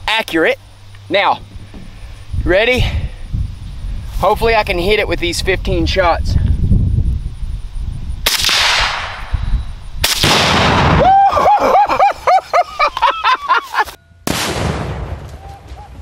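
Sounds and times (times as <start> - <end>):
rifle shots: 8.3 - 9.3, 10.0 - 11.0, 14.3 - 15.5
heavy explosive blast: 10.0 - 11.2, 14.2 - 15.4
man yelling and whooping: 11.0 - 13.9.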